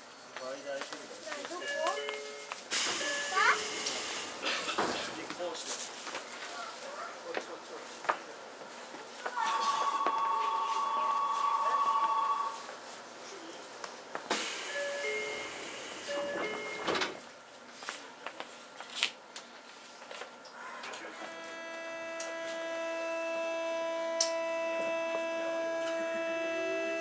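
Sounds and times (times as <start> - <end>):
train doors closing: 2.7 - 5.6, 9.4 - 12.7, 14.2 - 17.3, 20.8 - 27.0
train motor high whine: 9.4 - 12.7, 20.9 - 27.0.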